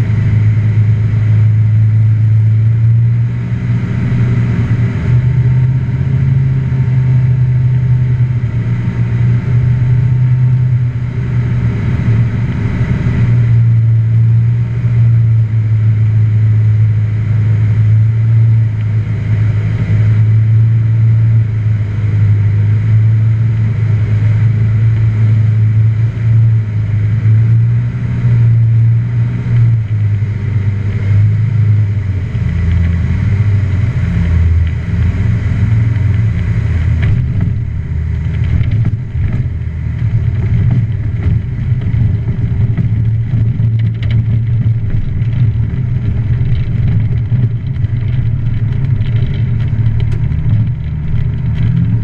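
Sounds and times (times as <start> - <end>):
aircraft engine and propeller drone: 0.0 - 52.0
rattles and knocks: 36.0 - 52.0.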